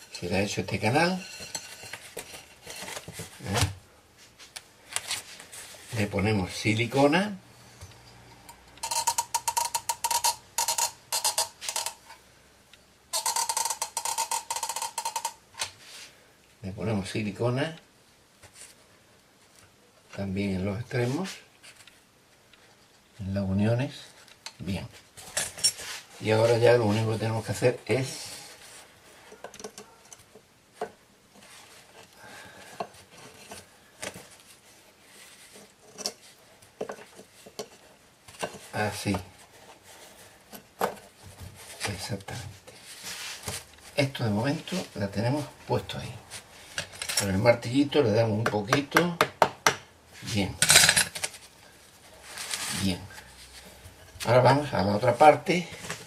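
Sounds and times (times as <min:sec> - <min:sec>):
wood rubbing against tile: 0:08.8 - 0:12.1, 0:13.1 - 0:15.4.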